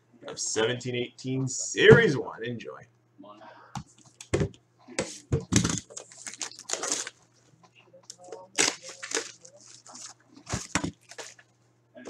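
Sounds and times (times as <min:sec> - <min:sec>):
plastic wrapping crinkling and tearing: 0:05.5 - 0:07.3, 0:08.1 - 0:11.5.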